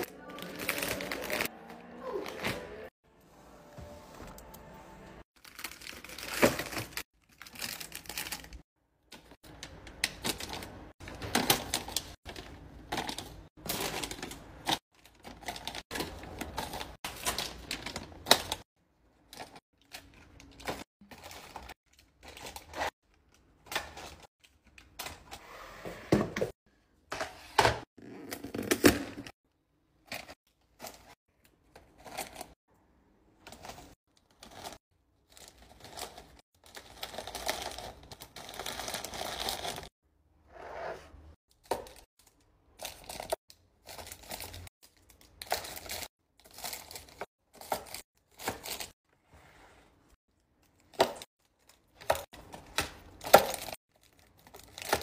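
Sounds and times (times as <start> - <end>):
plastic packets crinkling: 5.4 - 8.6.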